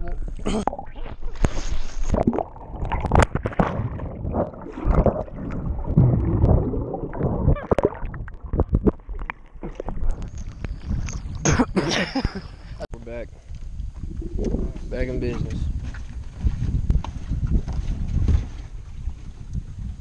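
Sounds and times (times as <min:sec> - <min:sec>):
muffled underwater rushing: 0:00.2 - 0:12.8, 0:14.0 - 0:15.6
water splashing: 0:00.6 - 0:11.7.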